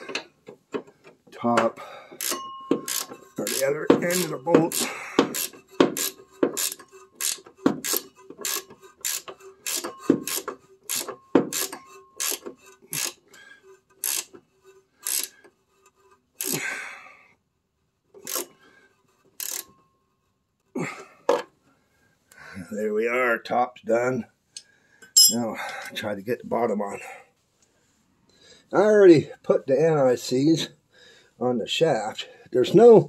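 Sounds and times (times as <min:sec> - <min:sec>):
ratcheting wrench clicking: 0:02.2 - 0:13.2, 0:13.9 - 0:14.4, 0:15.0 - 0:15.4, 0:18.2 - 0:18.5, 0:19.4 - 0:19.7.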